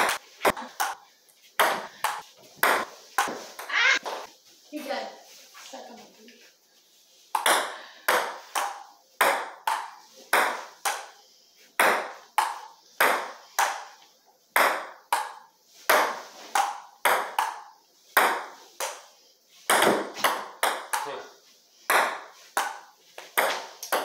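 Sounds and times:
ping pong ball on paddles and table: 0:01.6 - 0:04.3, 0:07.3 - 0:11.2, 0:11.8 - 0:24.0.

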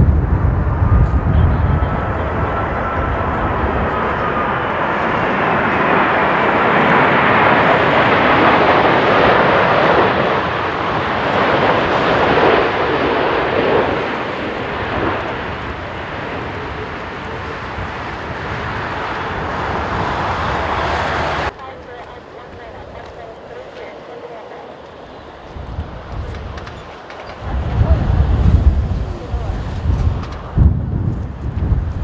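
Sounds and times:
jet aircraft roar: 0:00.0 - 0:32.0.

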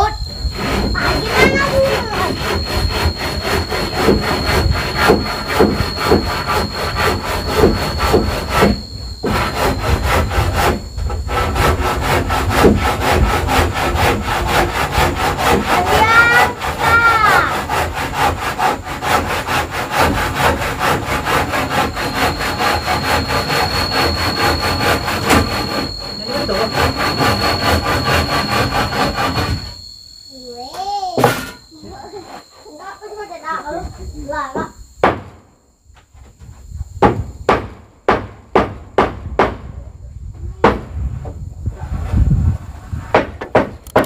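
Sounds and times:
saw cutting wood: 0:00.0 - 0:30.2, 0:31.2 - 0:33.1.

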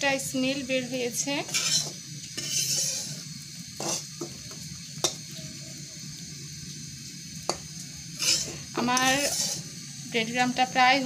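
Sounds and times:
steady hiss: 0:00.0 - 0:11.0
spatula stirring breadcrumbs: 0:01.4 - 0:04.0, 0:08.2 - 0:09.8.

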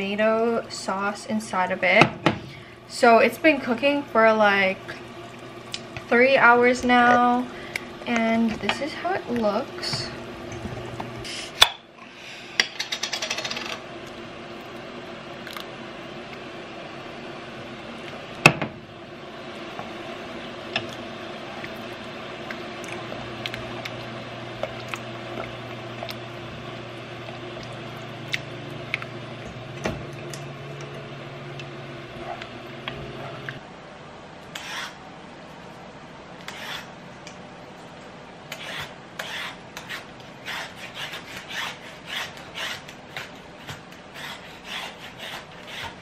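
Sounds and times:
peeler scraping carrot: 0:38.5 - 0:46.0.

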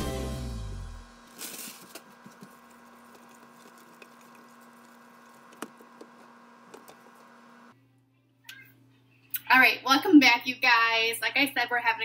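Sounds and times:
spoon stirring thick food: 0:02.1 - 0:07.4.

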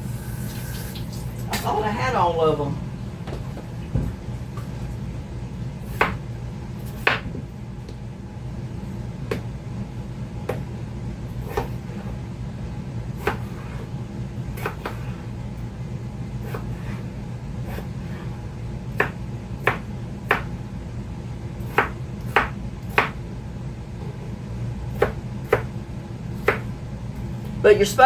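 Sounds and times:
steady low hum: 0:00.0 - 0:28.0
knife chopping on plastic board: 0:06.9 - 0:07.3, 0:11.4 - 0:11.8, 0:13.2 - 0:13.7, 0:14.6 - 0:15.1, 0:19.0 - 0:20.5, 0:21.7 - 0:23.2, 0:25.0 - 0:25.7, 0:26.4 - 0:26.7.

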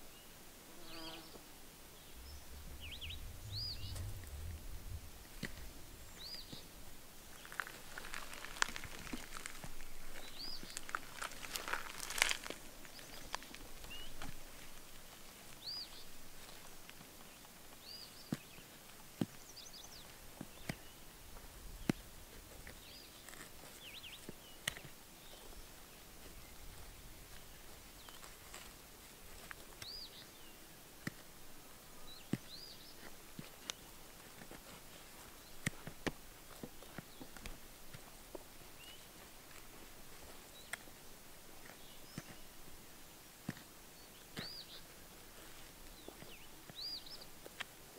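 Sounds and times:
small bird chirping: 0:00.0 - 0:01.4, 0:02.0 - 0:04.8, 0:05.4 - 0:14.8, 0:29.5 - 0:30.8, 0:41.6 - 0:42.6, 0:44.0 - 0:47.4
light clicks and scratches: 0:21.8 - 0:42.8.

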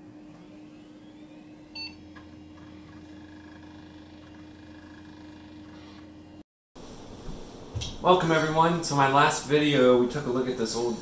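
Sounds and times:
computer fan hum: 0:00.0 - 0:11.0
short computer beep: 0:01.7 - 0:02.0.

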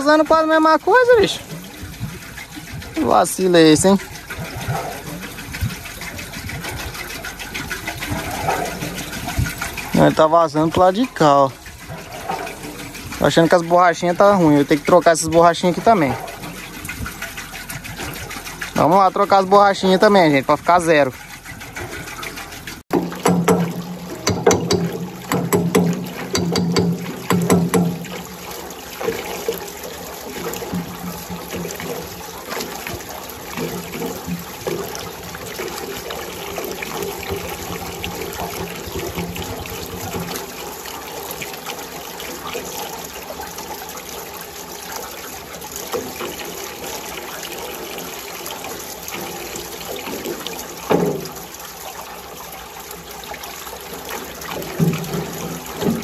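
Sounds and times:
water running and trickling: 0:00.0 - 0:56.0
sharp knocks: 0:22.9 - 0:28.5.

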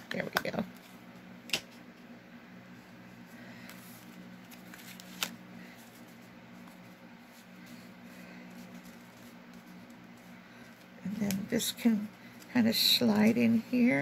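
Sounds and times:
steady low hum: 0:00.0 - 0:14.0
paper handling on a desk: 0:03.6 - 0:13.6.

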